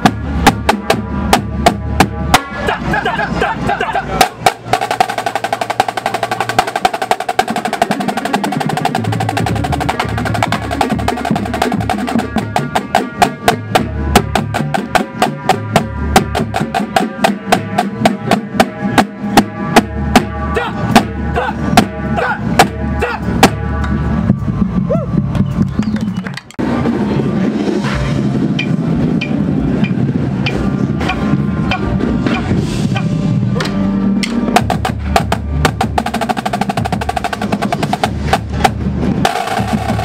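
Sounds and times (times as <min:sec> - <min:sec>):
tenor drums: 0:00.0 - 0:25.8, 0:26.4 - 0:40.0
pitched bass drums: 0:00.0 - 0:40.0
rapid snare drum strokes: 0:04.2 - 0:20.4, 0:34.2 - 0:40.0.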